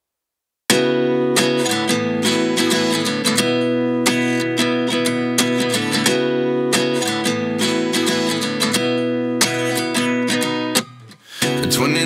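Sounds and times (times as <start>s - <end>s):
acoustic guitar strumming: 0.7s - 12.0s.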